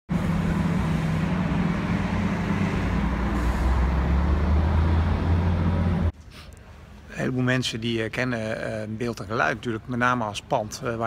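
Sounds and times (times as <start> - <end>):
low engine hum: 0.1 - 7.1
road traffic noise: 0.1 - 11.0.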